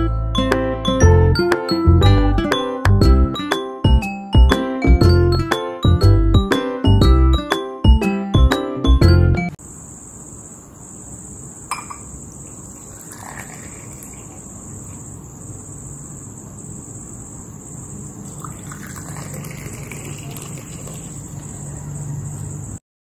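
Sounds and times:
liquid pouring into glasses: 11.7 - 14.6, 18.2 - 21.6.

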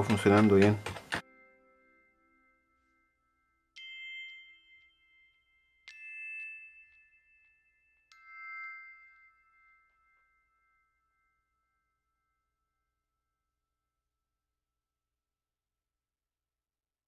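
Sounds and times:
bell-like chime notes: 1.2 - 13.5.

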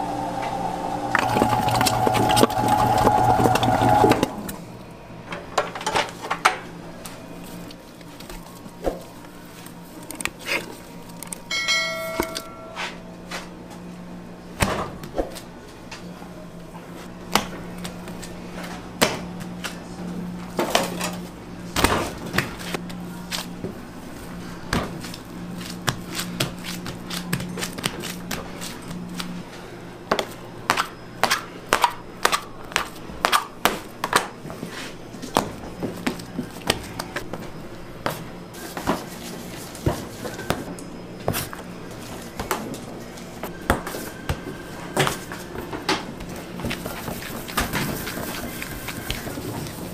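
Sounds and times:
low machine hum: 0.0 - 5.7.

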